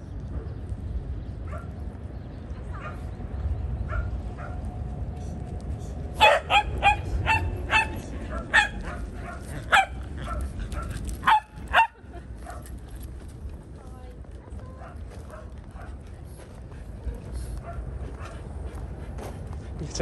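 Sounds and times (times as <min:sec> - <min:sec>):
dog barking: 0:01.5 - 0:01.7, 0:02.7 - 0:03.1, 0:03.9 - 0:04.6, 0:06.2 - 0:12.6.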